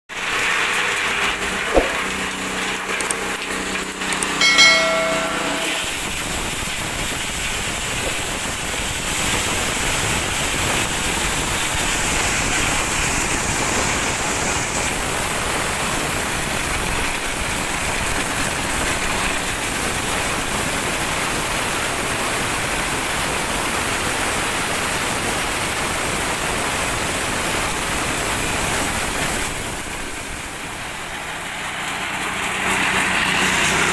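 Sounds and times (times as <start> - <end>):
brief high tone: 4.4 - 6.3.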